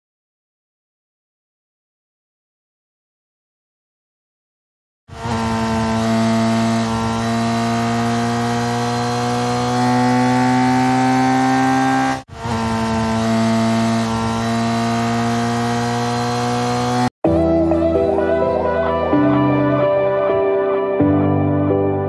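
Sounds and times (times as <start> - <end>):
motorbike engine revving: 5.1 - 17.2.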